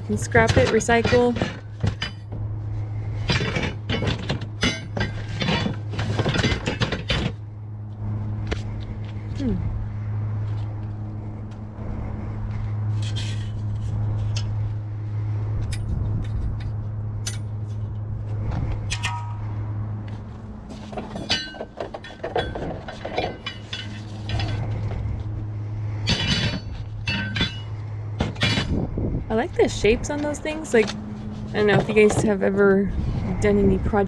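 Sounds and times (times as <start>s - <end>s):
steady low hum: 0.0s - 34.0s
scrap metal clattering: 0.1s - 7.4s, 12.9s - 14.6s, 18.6s - 25.3s, 25.9s - 28.9s, 29.8s - 32.6s.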